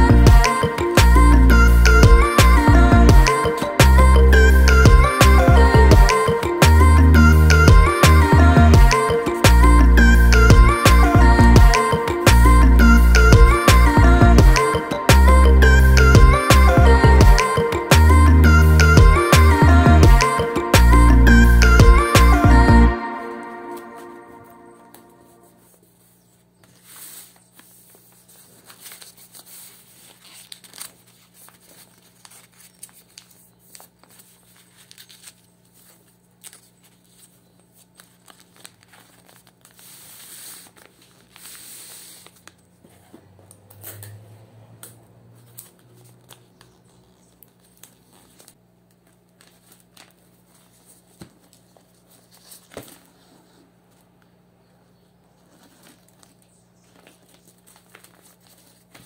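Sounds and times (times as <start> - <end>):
wrapping paper rustling: 24.8 - 43.1, 45.4 - 54.1, 55.2 - 59.0.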